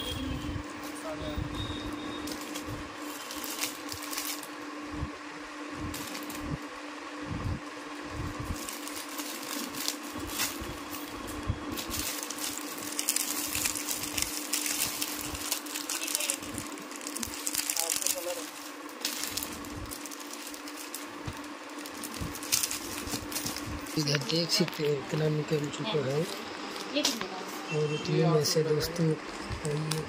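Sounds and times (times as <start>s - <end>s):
steady low hum: 0.0s - 30.0s
plastic packets rustling and crinkling: 2.2s - 4.6s, 5.9s - 6.6s, 8.4s - 27.2s, 29.3s - 30.0s
small clicks and crackles: 11.8s - 23.7s, 29.3s - 30.0s.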